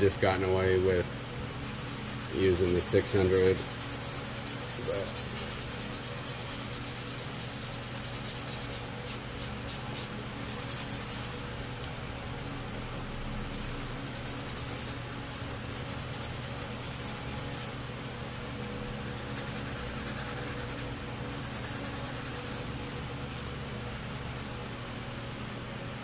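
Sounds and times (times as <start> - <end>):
sandpaper scratching on plastic: 1.6 - 11.4, 13.6 - 17.8, 19.0 - 22.6.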